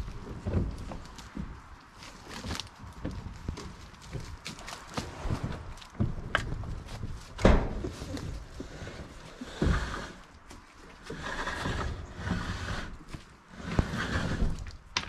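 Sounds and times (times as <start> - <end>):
plastic tank knocking and scraping: 0.0 - 1.6
hollow thuds: 0.0 - 13.0.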